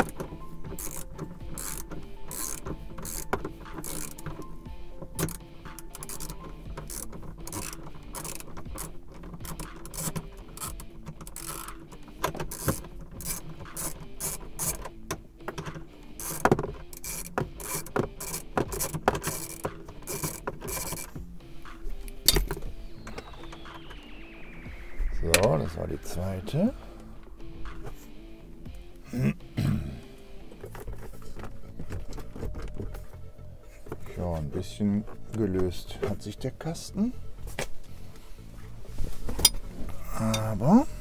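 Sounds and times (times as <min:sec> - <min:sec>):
wrench metal clicks and scrapes: 0:00.0 - 0:04.5, 0:05.2 - 0:21.2.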